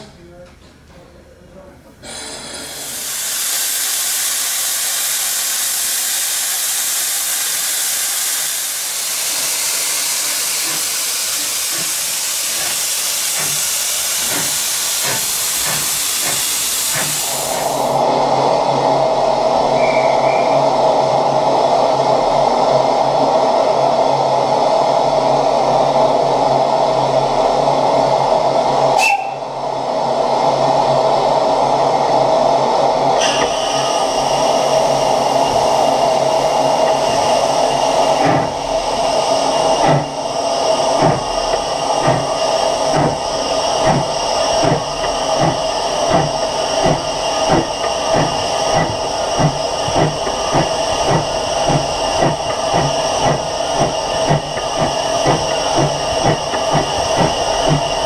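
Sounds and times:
steam locomotive hissing: 2.0 - 23.4, 28.4 - 58.0
locomotive exhaust beats: 38.1 - 58.0.

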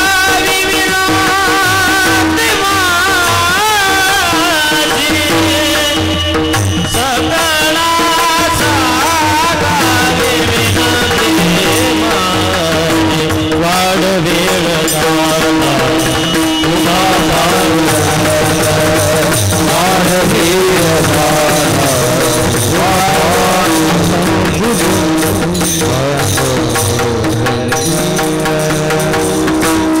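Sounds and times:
drum: 0.0 - 30.0
men singing devotional melody: 0.0 - 30.0
steady held note: 1.5 - 30.0
brass hand cymbals clashing: 14.4 - 30.0.

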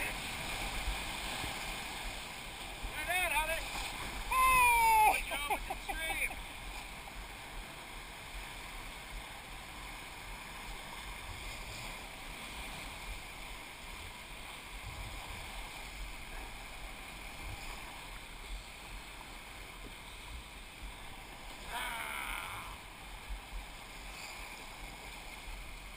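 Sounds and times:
whitewater rushing in river rapid: 0.0 - 14.8, 20.7 - 23.9.

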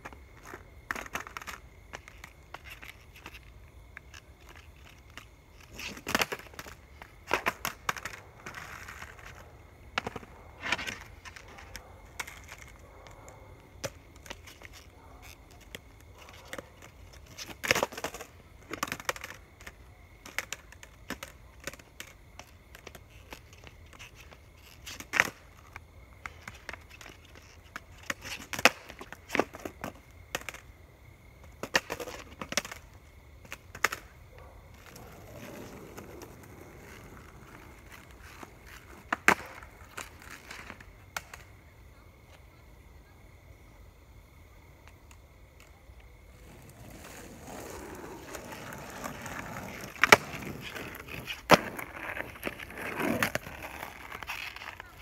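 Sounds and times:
skateboard wheels rolling on asphalt: 0.0 - 55.0
skateboard pops and clacks: 5.1 - 12.8, 16.5 - 25.6, 26.2 - 30.7, 31.4 - 32.8, 33.4 - 34.2, 34.8 - 41.5, 46.4 - 55.0.

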